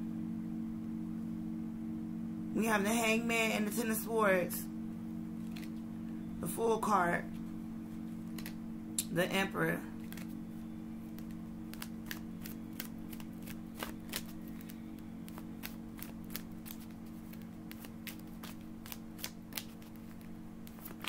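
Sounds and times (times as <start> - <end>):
steady low hum: 0.0 - 21.0
cards being shuffled: 5.4 - 5.8, 8.2 - 8.6, 10.0 - 10.4, 11.0 - 21.0.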